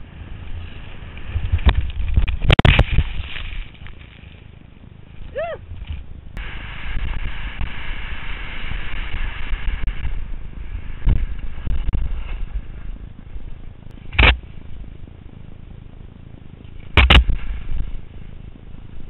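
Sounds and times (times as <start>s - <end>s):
low rumble: 0.0s - 19.0s
wind buffeting camera: 0.0s - 19.0s
thumps: 16.9s - 17.9s.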